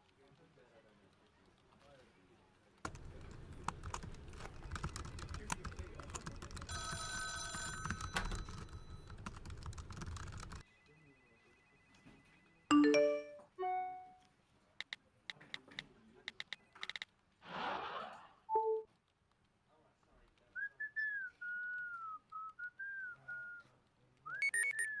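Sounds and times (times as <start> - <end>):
phone ringing: 6.7 - 9.4, 10.3 - 14.2
faint steady tone: 10.6 - 14.3
loud electronic beeps: 24.4 - 25.0.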